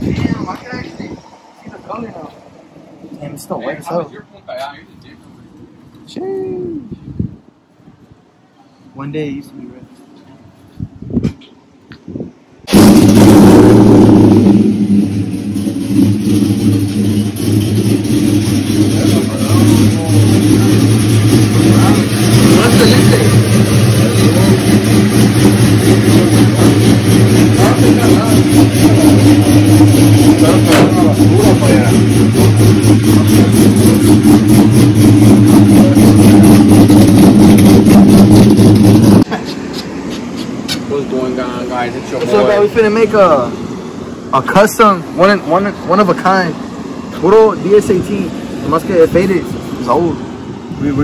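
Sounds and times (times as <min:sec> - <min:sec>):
pickup engine idling: 0:12.7 - 0:50.8.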